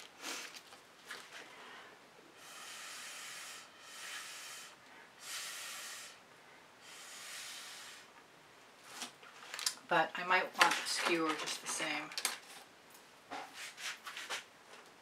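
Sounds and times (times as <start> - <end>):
breath blown through straw: 2.3 - 6.2, 6.8 - 8.1.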